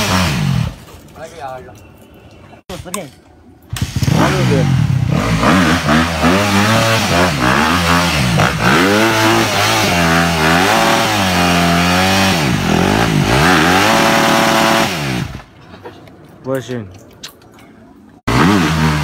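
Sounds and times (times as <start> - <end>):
motocross bike engine revving: 0.0 - 0.8, 3.7 - 15.4, 18.3 - 19.0.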